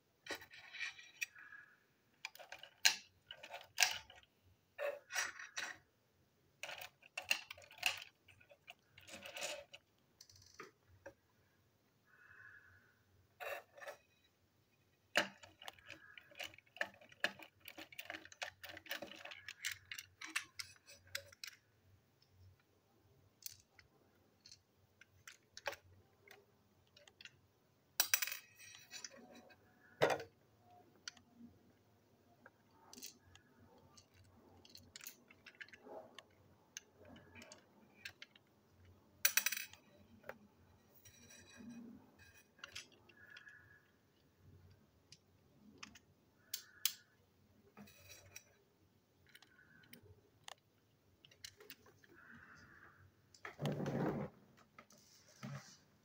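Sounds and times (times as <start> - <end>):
plastic parts clicking and rattling: 0.2 - 11.2, 13.4 - 53.9.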